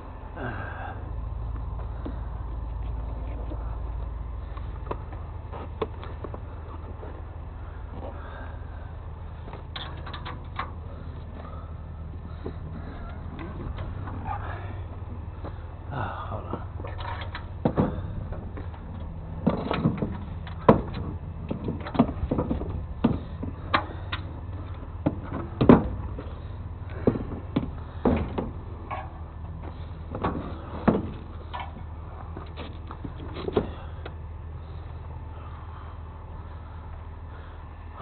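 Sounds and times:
vehicle engine idling: 0:00.0 - 0:38.0
irregular knocks and clatter: 0:09.4 - 0:15.6, 0:16.5 - 0:34.2.

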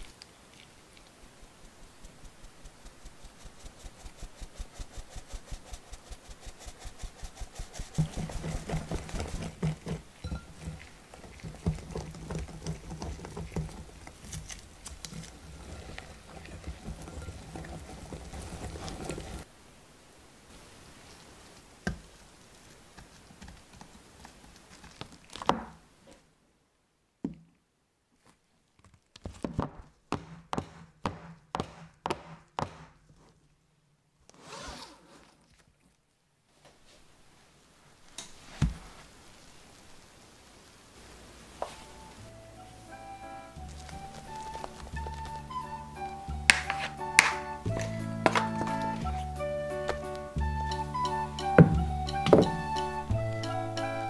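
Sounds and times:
sieve rim tapping: 0:08.0 - 0:13.7, 0:46.5 - 0:49.0
sharp knocks and taps: 0:08.0 - 0:13.9
spatula folding batter against glass: 0:46.5 - 0:50.0.

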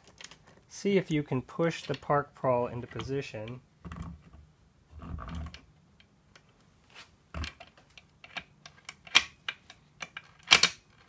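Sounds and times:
metal parts clicking and knocking: 0:00.0 - 0:00.6, 0:07.4 - 0:11.0.

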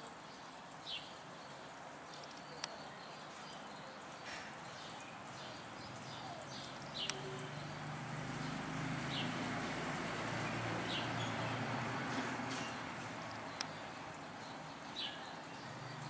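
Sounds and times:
small birds chirping: 0:00.1 - 0:16.0.

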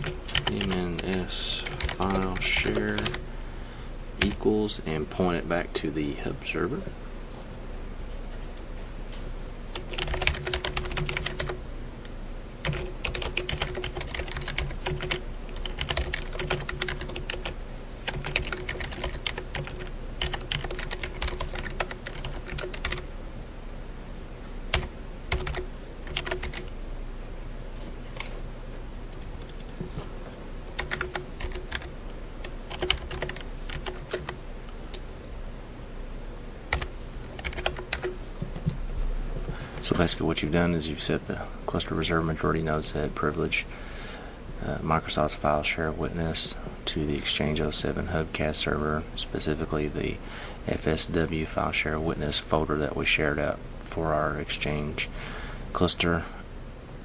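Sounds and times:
typing on computer keyboard: 0:00.0 - 0:03.2, 0:09.8 - 0:11.6, 0:12.6 - 0:23.0, 0:24.7 - 0:26.7, 0:30.8 - 0:31.9, 0:32.7 - 0:34.4, 0:36.7 - 0:38.7
steady low hum: 0:00.0 - 0:57.0.

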